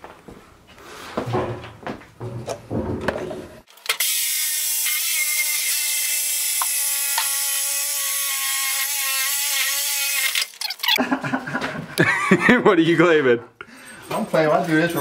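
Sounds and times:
power tool cutting sheet metal: 0:03.7 - 0:11.0.

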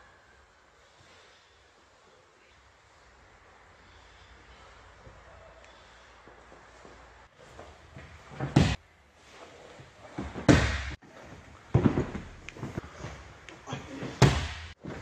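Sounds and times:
body slams on padded mat: 0:08.4 - 0:08.8, 0:10.2 - 0:11.0, 0:14.2 - 0:15.0.

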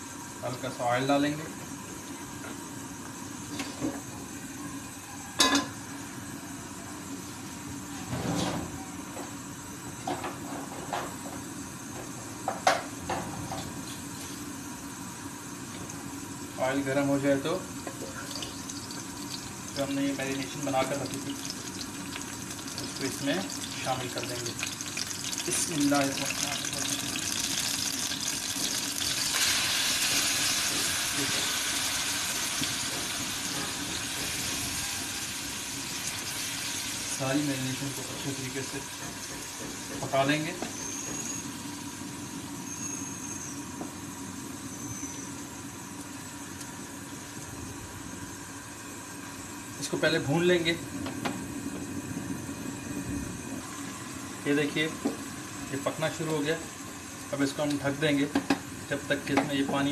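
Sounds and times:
oil hissing in a frying pan: 0:13.8 - 0:47.5.

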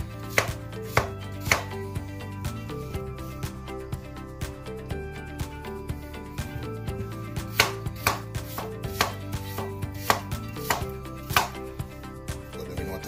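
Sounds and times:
knife chopping on plastic board: 0:00.3 - 0:01.7, 0:07.5 - 0:11.6.

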